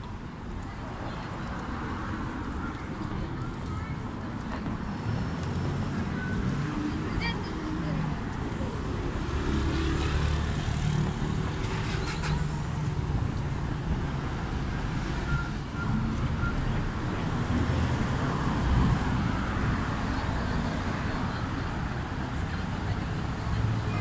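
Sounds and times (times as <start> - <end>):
street traffic rumble: 0.0 - 24.0
high-pitched squeal: 14.9 - 16.8.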